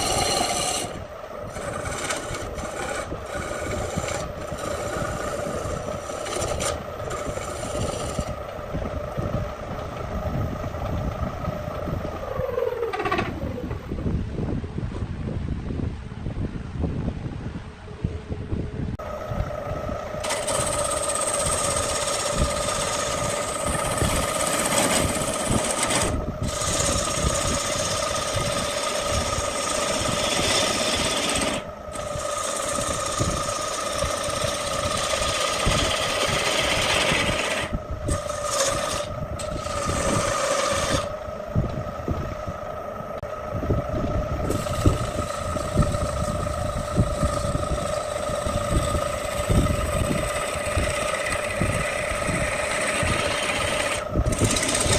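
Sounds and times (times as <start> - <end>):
chisel cutting wood: 0.0 - 8.4, 20.2 - 41.2, 44.5 - 54.9
lathe motor hum: 0.0 - 13.8, 19.0 - 54.9.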